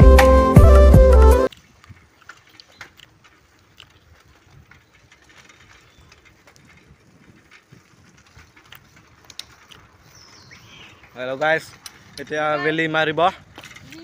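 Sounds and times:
faint outdoor background: 0.0 - 14.0
light clicks and ticks: 1.5 - 12.3.

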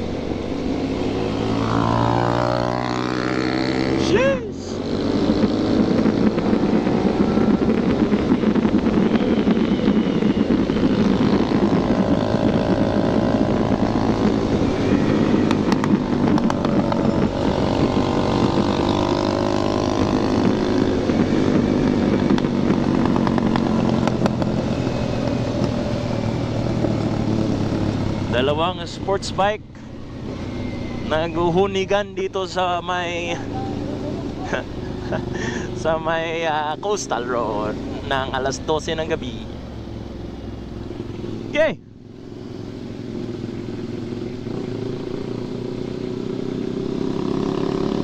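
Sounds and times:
wind noise: 0.0 - 28.3
motorcycle engines revving: 0.0 - 48.0.

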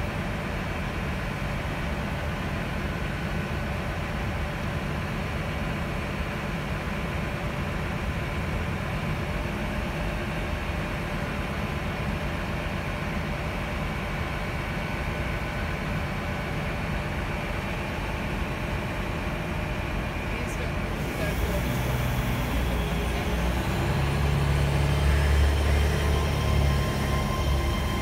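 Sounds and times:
train idling rumble: 0.0 - 28.0.

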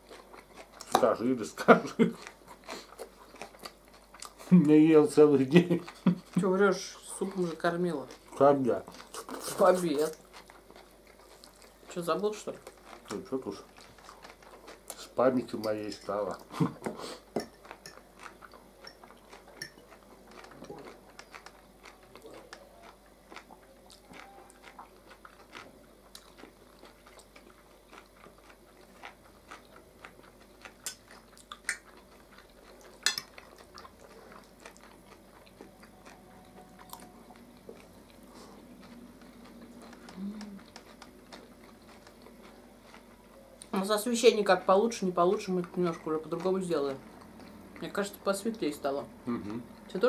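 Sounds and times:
soft chewing: 0.0 - 50.0
forks clinking on plates: 33.0 - 33.3.

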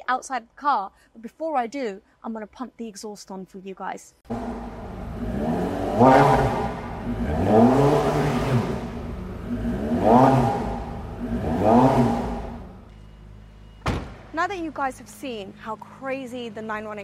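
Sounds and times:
car engine revving and idling: 4.3 - 13.7.

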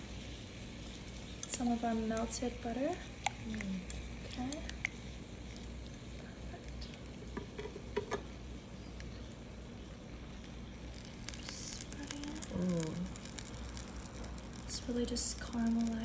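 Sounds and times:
meat patty sizzling: 0.0 - 16.0.

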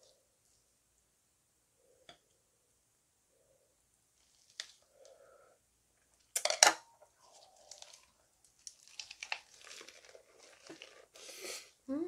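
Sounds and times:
lettuce leaves crackling: 7.3 - 11.2
crunchy bites and chewing: 7.4 - 11.1.

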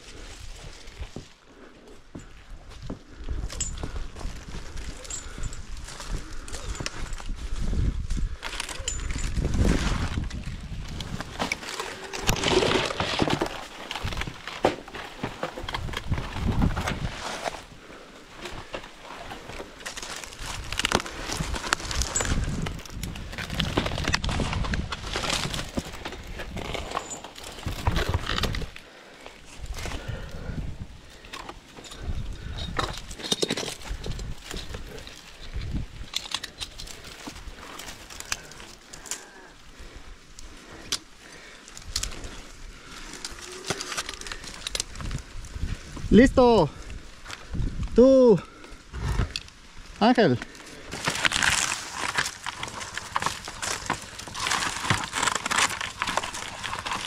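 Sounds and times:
dry palm fronds rustling: 0.0 - 57.0
metal carabiners clicking: 3.4 - 4.1, 4.8 - 9.6, 26.5 - 28.6, 31.2 - 39.5.

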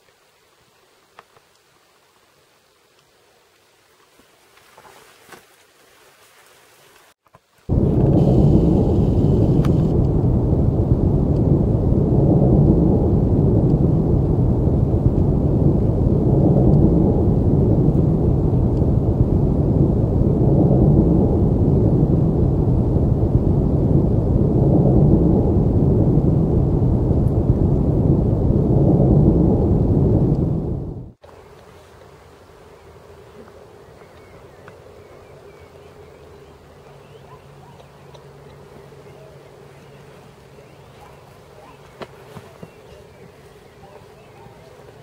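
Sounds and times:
dense rumbling drone: 7.7 - 31.2.

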